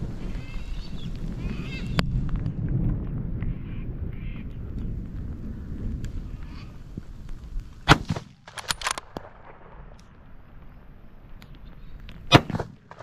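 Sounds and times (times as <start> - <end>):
rifle shots: 7.9 - 10.0, 12.3 - 13.0.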